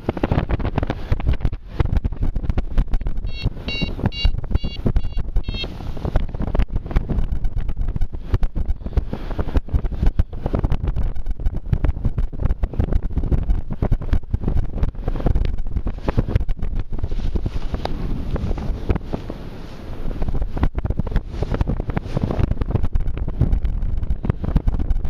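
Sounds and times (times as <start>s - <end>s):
wind buffeting microphone: 0.0s - 25.0s
short electronic beeps: 3.2s - 5.8s.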